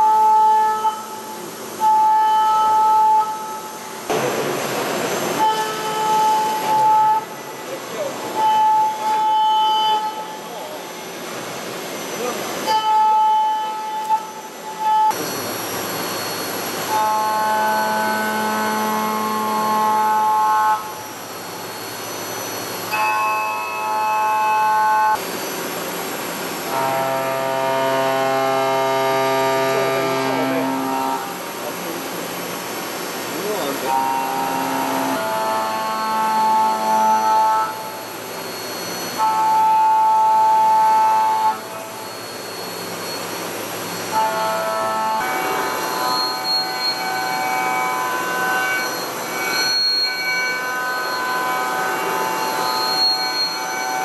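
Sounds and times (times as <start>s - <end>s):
milling cutter whine: 15.1s - 23.0s, 25.7s - 32.4s, 33.1s - 54.0s
cutter whine: 26.7s - 31.4s.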